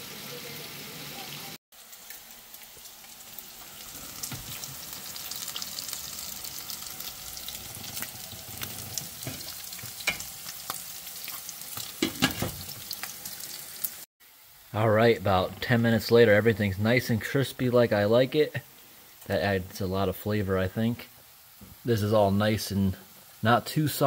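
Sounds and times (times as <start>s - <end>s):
bacon sizzling with pops: 0.0s - 14.8s, 20.9s - 24.0s.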